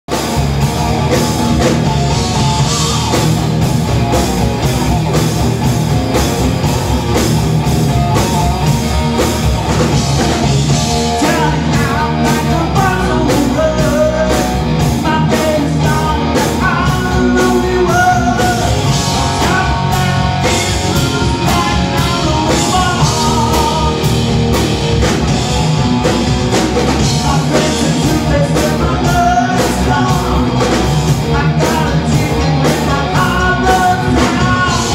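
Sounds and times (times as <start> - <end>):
drums: 0.0 - 34.9
electric guitar: 0.1 - 34.9
man singing: 11.0 - 24.1, 27.0 - 34.9.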